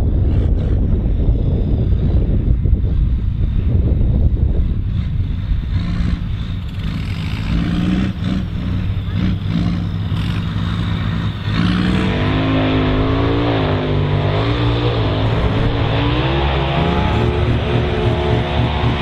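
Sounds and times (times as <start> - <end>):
tractor diesel engine under load: 3.9 - 19.0.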